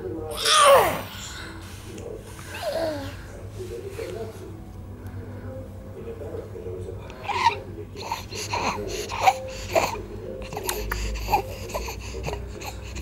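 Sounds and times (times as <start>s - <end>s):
baby making vocal sounds: 0.3s - 1.3s.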